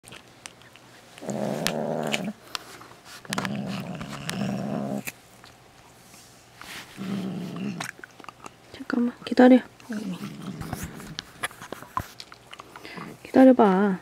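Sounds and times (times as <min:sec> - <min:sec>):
cat growling: 0:01.2 - 0:02.4, 0:03.3 - 0:05.1, 0:07.0 - 0:08.0, 0:09.9 - 0:11.2.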